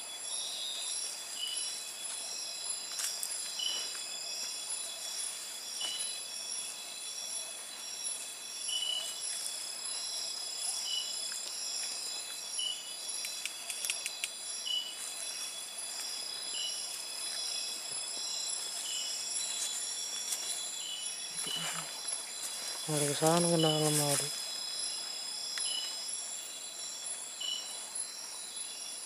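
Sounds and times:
insect chirping: 0.0s - 29.0s
insects trilling: 0.0s - 29.0s
sharp clicks: 13.2s - 14.4s.

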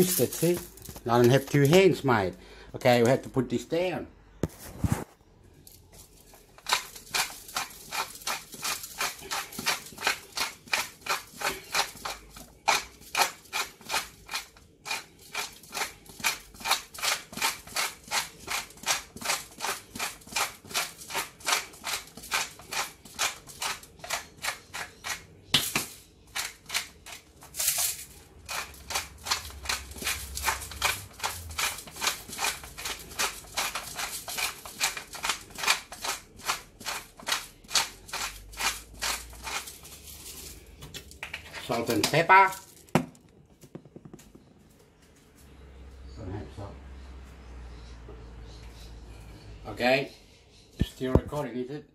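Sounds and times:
spice mill grinding: 0.0s - 2.0s, 5.6s - 44.5s.

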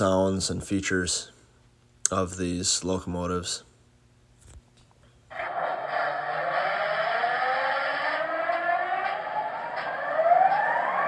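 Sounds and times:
whines rising in pitch: 5.3s - 11.0s.

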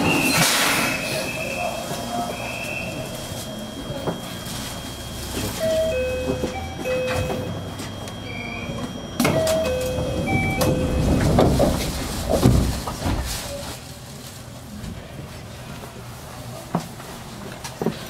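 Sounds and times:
train doors sliding shut: 0.0s - 1.4s, 9.2s - 13.8s
electronic chime: 3.0s - 11.2s.

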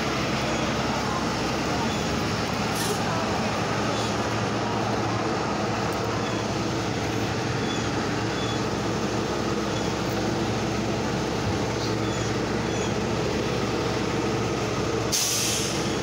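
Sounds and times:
bus engines rumbling: 0.0s - 16.0s.

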